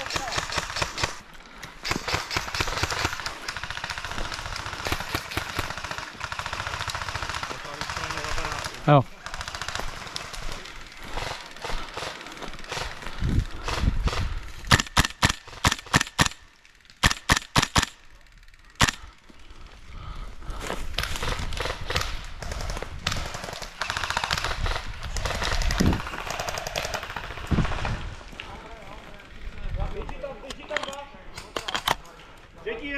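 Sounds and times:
airsoft automatic fire: 0.0s - 1.2s, 1.8s - 13.0s, 21.2s - 27.9s.

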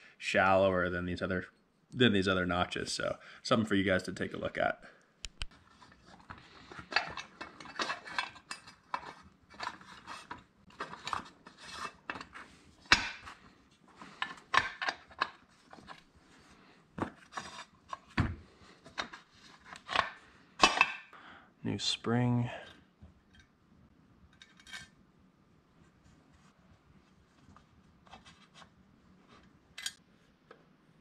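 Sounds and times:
steel parts clinking and scraping: 5.6s - 16.1s, 24.3s - 25.0s, 29.8s - 30.0s.

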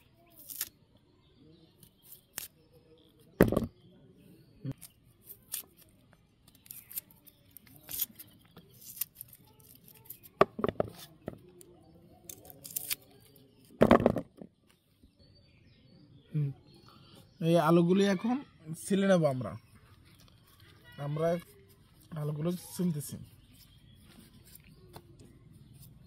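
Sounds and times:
blade scraping onion skins: 0.3s - 0.8s, 1.8s - 2.6s, 4.7s - 5.9s, 6.5s - 11.4s, 12.3s - 13.3s
onions knocking into plastic bowl: 13.8s - 14.4s.

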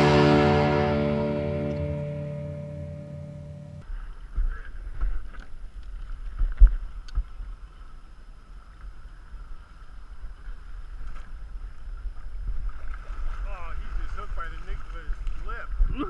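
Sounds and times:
wind rumbling on microphone: 8.5s - 16.0s.

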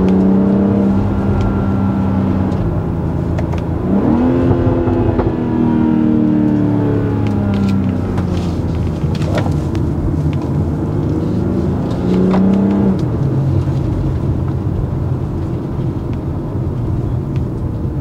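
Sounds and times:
car engine revving from cabin: 0.0s - 14.0s.

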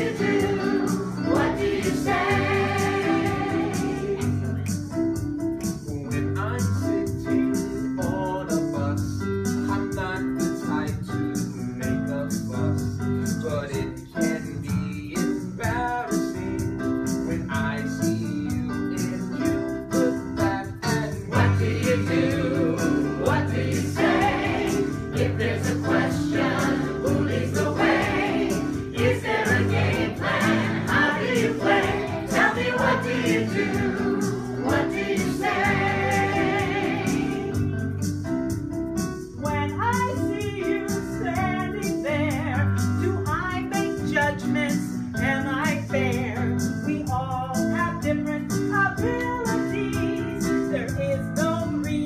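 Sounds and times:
voices singing: 0.0s - 4.3s, 21.1s - 37.5s
electric keyboard playing: 0.0s - 6.4s, 18.6s - 42.6s.

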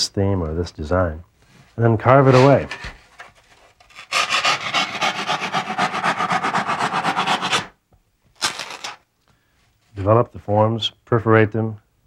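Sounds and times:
hand saw rasping through styrofoam: 4.0s - 7.8s.

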